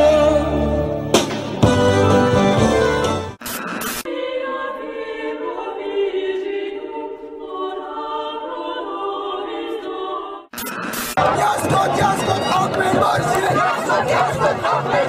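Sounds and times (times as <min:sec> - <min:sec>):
choir singing a cappella: 0:04.0 - 0:10.5, 0:11.2 - 0:15.0.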